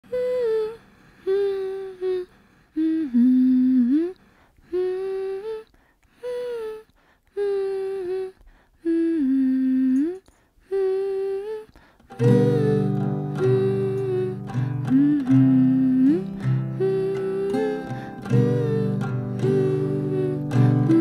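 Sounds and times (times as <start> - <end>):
person humming a melody: 0.0 - 21.0.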